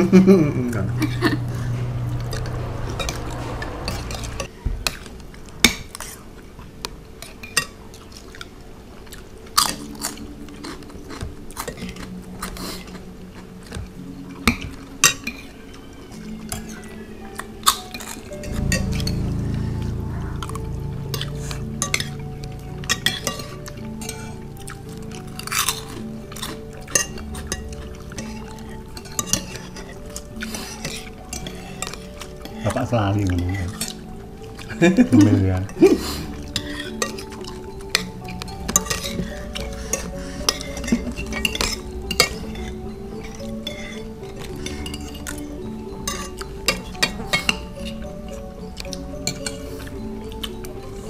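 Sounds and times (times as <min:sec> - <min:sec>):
soft background music: 0:00.0 - 0:51.0
spoons clinking on plates: 0:03.0 - 0:08.6, 0:21.8 - 0:51.0.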